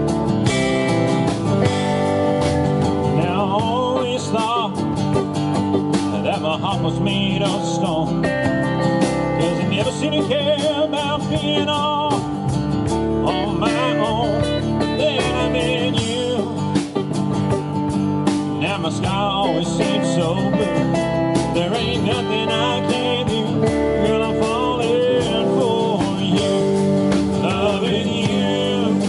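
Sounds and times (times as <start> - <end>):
acoustic guitar: 0.0 - 29.0
drums: 0.0 - 29.0
electric guitar: 0.0 - 29.0
man singing: 3.1 - 4.9, 6.0 - 8.3, 9.3 - 12.4, 13.2 - 16.8, 18.5 - 29.0.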